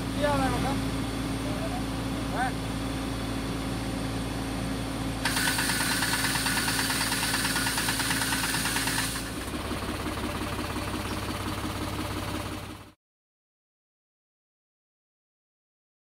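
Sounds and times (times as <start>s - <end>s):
tractor engine running: 0.0s - 13.0s
shaken tree rushing rattle: 5.3s - 9.6s.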